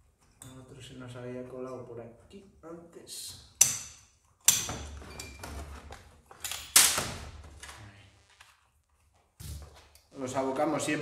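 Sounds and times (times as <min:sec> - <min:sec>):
metal parts clinking and knocking: 0:06.3 - 0:07.0.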